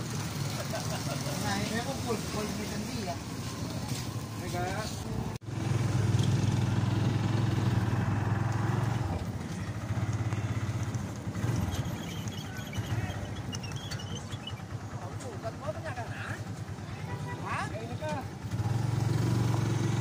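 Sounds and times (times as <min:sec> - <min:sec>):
motorcycle engine running: 0:05.1 - 0:20.0.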